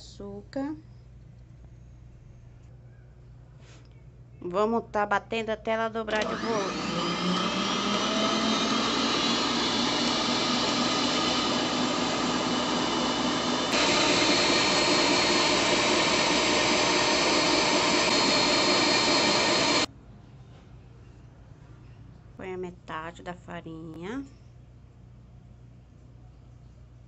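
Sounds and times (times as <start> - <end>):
stand mixer whisking: 6.2 - 19.9.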